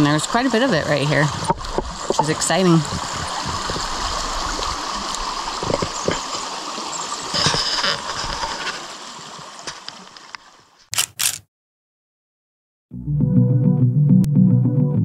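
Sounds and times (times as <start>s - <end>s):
creek trickling over stones: 0.0s - 10.9s.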